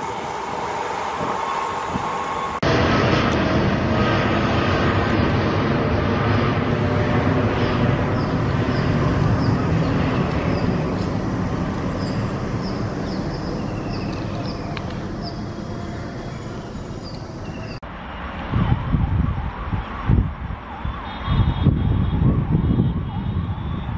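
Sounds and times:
jet engines roaring: 0.0 - 23.9
wind buffeting microphone: 0.0 - 23.9.

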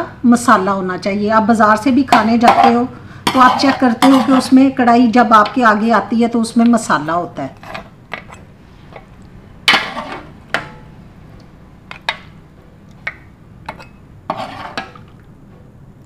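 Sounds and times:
ladle scraping metal pot: 2.2 - 4.7, 7.5 - 10.9, 13.0 - 15.2
ladle clinking on metal: 13.0 - 14.0.

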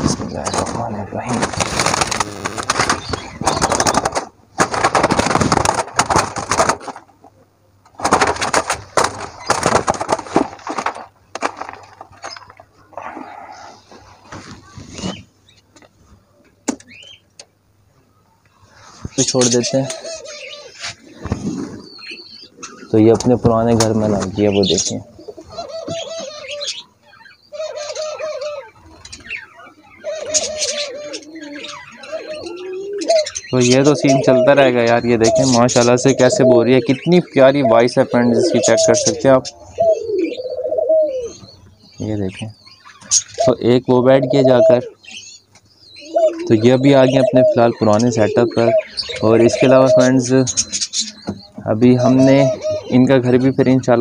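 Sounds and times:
budgerigars chirping and chattering: 0.0 - 5.7, 13.5 - 15.9, 16.7 - 17.5, 18.5 - 54.0
dove wings flapping against mesh: 0.0 - 7.0, 8.0 - 12.5
doves cooing: 0.0 - 54.0.

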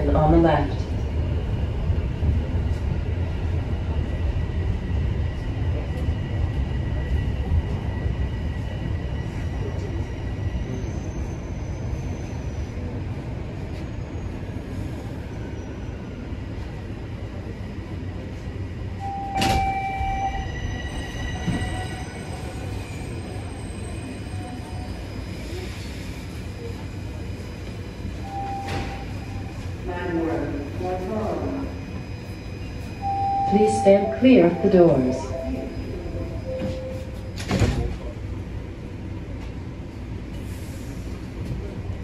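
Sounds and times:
subway train low rumble: 0.0 - 42.0
short beep: 33.0 - 37.3.

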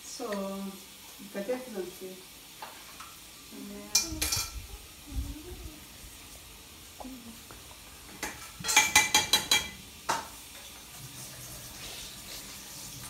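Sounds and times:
metal pots clattering: 3.9 - 4.6, 8.0 - 11.0.

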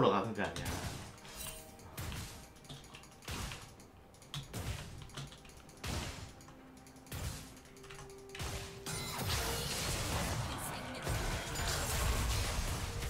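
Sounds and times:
faint game sound effects: 7.0 - 13.0.

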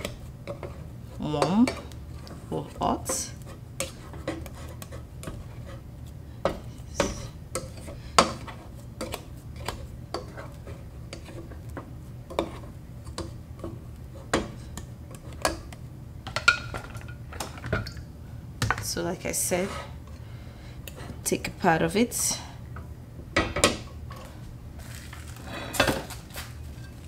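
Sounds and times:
low steady hum: 0.0 - 27.0
spatula scraping a steel saucepan: 3.0 - 5.9.

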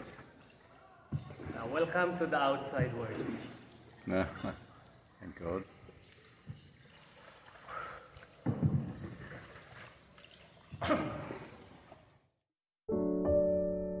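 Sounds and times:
paddle strokes splashing: 0.0 - 12.2
piano music: 12.9 - 14.0.

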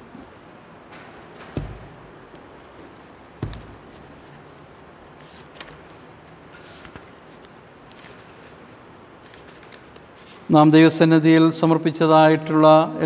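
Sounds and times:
room hiss: 0.0 - 13.0
book thump on wooden lectern: 1.4 - 2.1, 3.4 - 4.0
pages rustling: 3.2 - 10.5.

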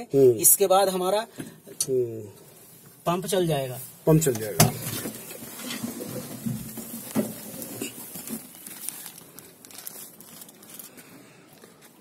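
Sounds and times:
clothing and phone rustling: 3.8 - 12.0.

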